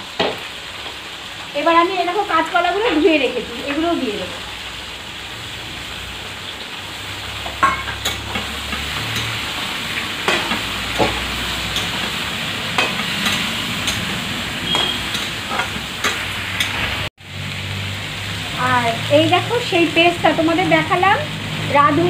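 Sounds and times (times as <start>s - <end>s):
vegetables sizzling in hot oil: 0.0s - 22.0s
metal spoon scraping a pan: 7.6s - 16.9s.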